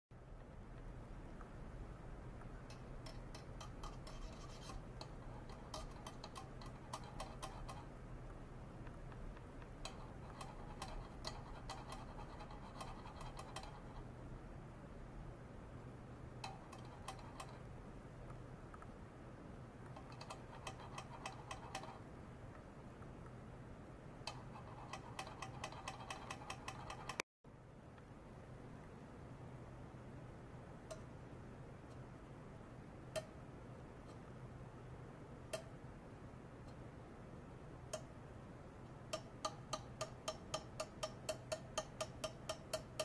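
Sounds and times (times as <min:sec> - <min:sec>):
faint steady hum: 0:00.1 - 0:43.0
ultrasonic probe ticking and crackling: 0:00.2 - 0:14.4, 0:15.8 - 0:19.0, 0:19.7 - 0:23.3, 0:24.2 - 0:27.2, 0:35.4 - 0:35.8, 0:37.7 - 0:38.2, 0:38.8 - 0:43.0.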